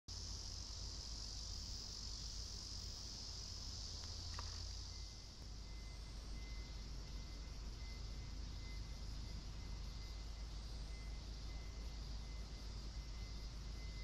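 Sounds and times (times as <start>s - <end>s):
insects chorus: 0.1s - 14.0s
faint chirp: 3.9s - 14.0s.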